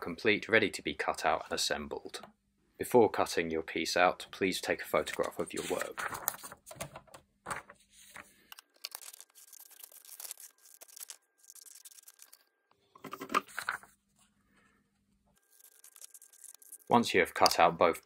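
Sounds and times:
paper rustling and crinkling: 5.0s - 12.5s, 13.1s - 14.0s, 15.4s - 16.9s
scissors cutting paper: 15.4s - 16.9s.

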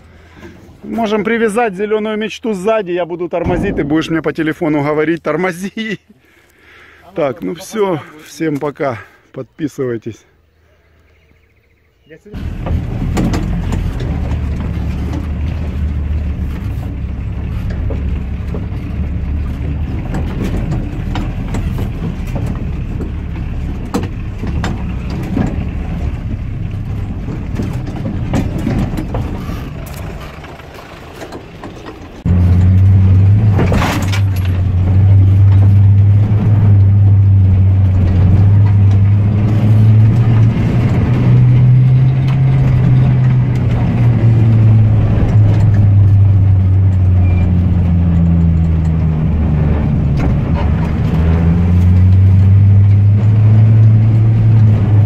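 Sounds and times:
vehicle engine running: 12.4s - 55.0s
higher engine note climbing in pitch: 32.1s - 55.0s.

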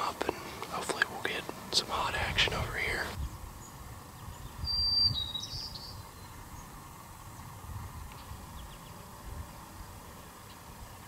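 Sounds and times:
faint bird chirps: 2.8s - 7.5s
bird whistled call: 4.6s - 6.3s.

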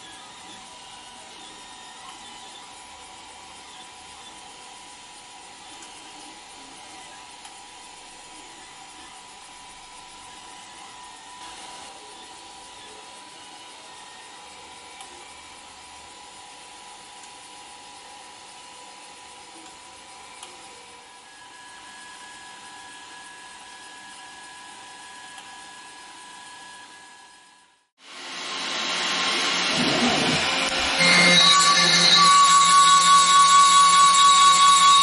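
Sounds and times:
three d printer whirring: 0.0s - 27.5s
higher whine: 28.1s - 35.0s.

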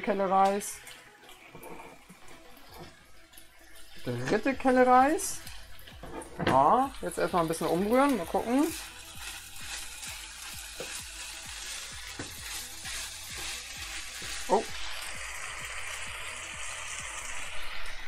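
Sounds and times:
food sizzling in a frying pan: 0.0s - 18.0s
spatula scraping a pan: 5.8s - 6.5s, 8.7s - 14.9s.

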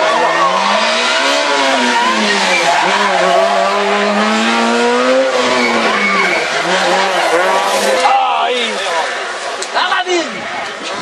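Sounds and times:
rally car engine revving: 0.0s - 9.5s.

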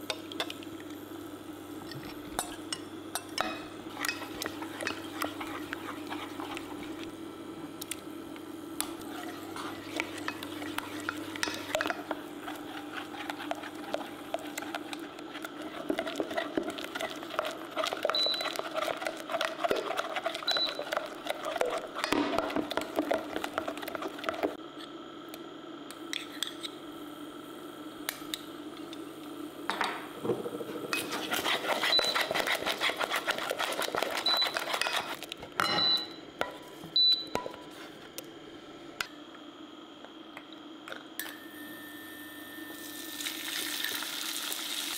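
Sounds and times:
steady low hum: 0.0s - 41.6s
spatula scraping saucepan: 3.4s - 7.1s, 8.8s - 24.6s, 30.7s - 35.2s.

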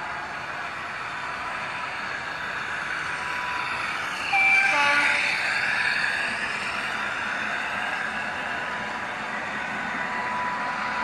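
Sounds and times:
model locomotive engine sound: 0.0s - 11.0s
two-note train horn: 4.4s - 5.2s.

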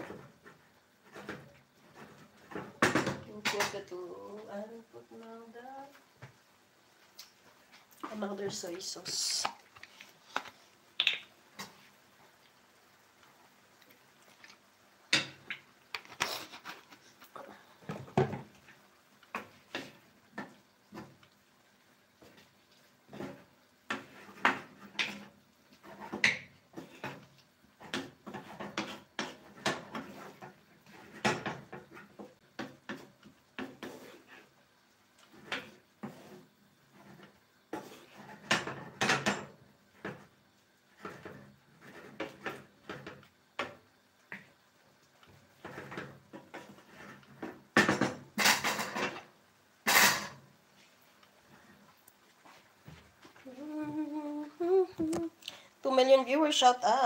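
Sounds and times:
wooden spatula scraping a frying pan: 0.0s - 4.1s, 16.0s - 21.4s, 22.2s - 53.5s.

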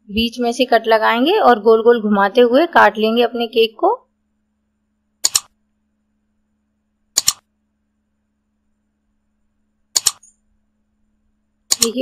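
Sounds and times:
mouse double click: 5.2s - 5.5s, 7.2s - 7.4s, 10.0s - 10.3s, 11.7s - 12.0s.

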